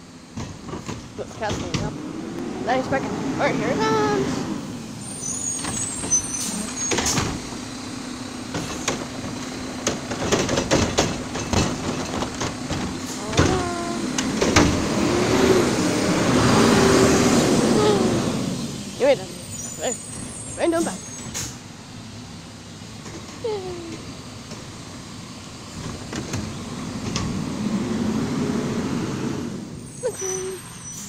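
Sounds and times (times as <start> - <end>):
garbage truck engine running: 0.0 - 31.0
clanks and knocks of bin and arm: 0.3 - 2.0, 6.8 - 7.6, 8.5 - 15.0, 25.7 - 27.5.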